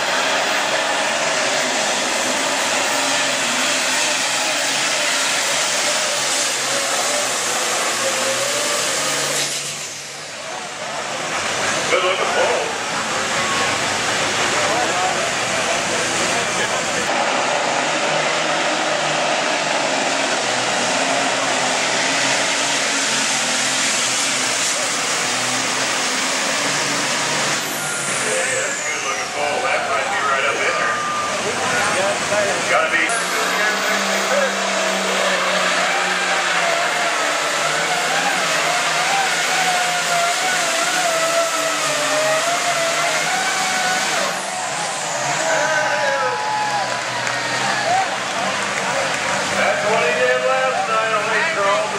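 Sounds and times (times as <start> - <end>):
tractor diesel engine at full throttle: 0.0 - 51.9.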